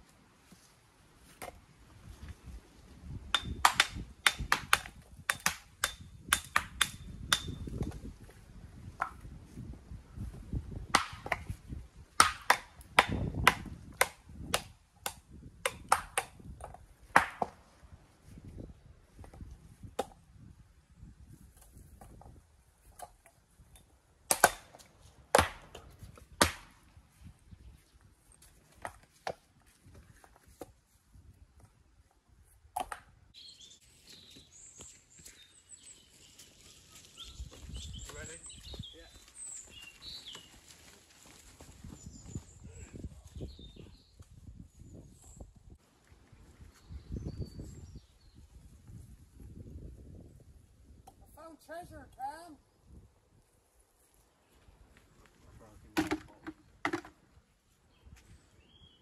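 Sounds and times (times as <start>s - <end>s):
birds chirping: 33.4s - 40.9s.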